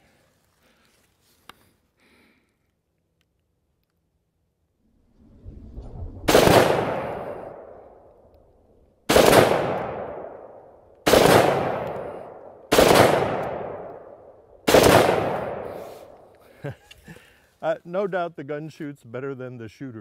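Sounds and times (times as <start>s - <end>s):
rifle shots: 6.3s - 8.0s, 9.1s - 16.2s.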